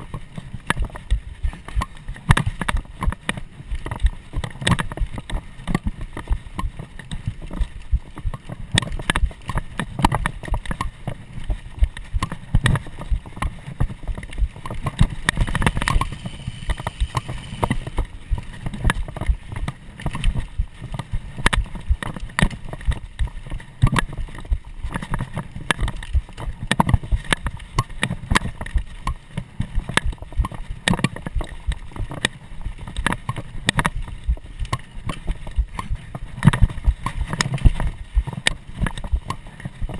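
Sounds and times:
bike rattling and knocking: 0.0s - 39.9s
rumble of tyres and wind: 0.0s - 39.9s.

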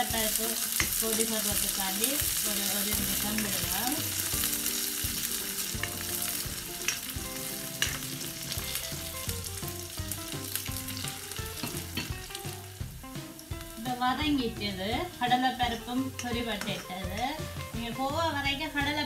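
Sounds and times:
vegetables sizzling in hot oil: 0.0s - 19.0s
spatula stirring in a wok: 0.3s - 13.7s.

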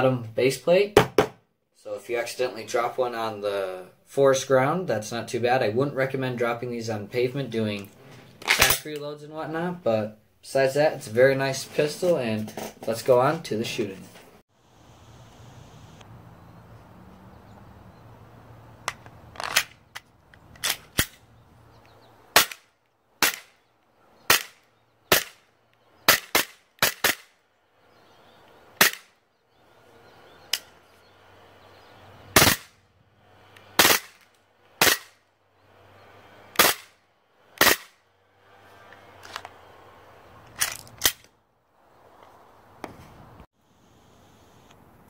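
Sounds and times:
airsoft pistol shots: 32.4s - 32.7s, 37.6s - 38.0s.

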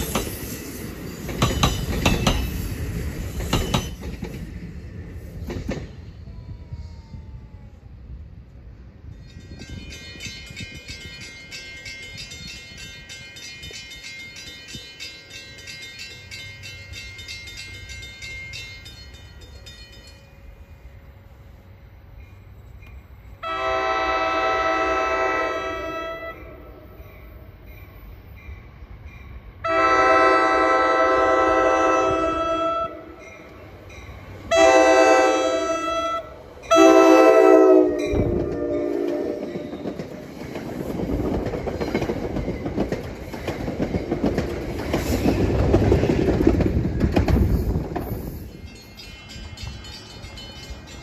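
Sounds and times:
train wheels clattering on rails: 0.0s - 6.1s, 37.9s - 51.0s
train horn blasts: 23.4s - 26.9s, 29.6s - 33.2s, 34.5s - 39.8s.

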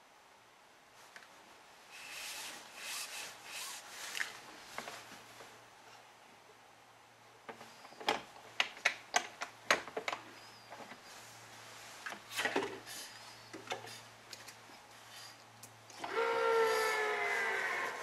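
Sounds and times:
rustle: 0.8s - 6.3s, 9.9s - 18.0s.

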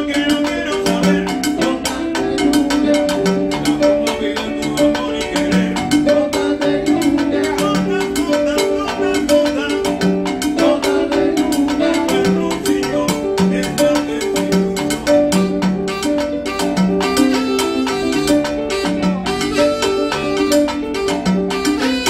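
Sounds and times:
hand drums and percussion: 0.0s - 22.0s
piano notes: 0.0s - 22.0s.

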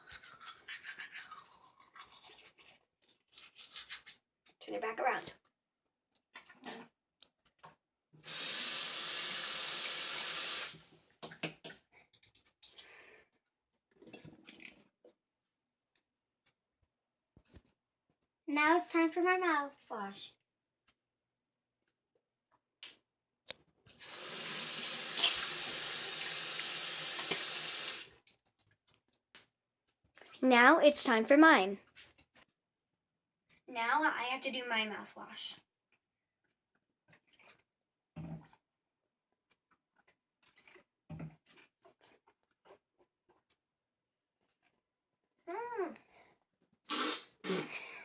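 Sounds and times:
faucet running: 8.2s - 10.8s, 24.0s - 28.1s.

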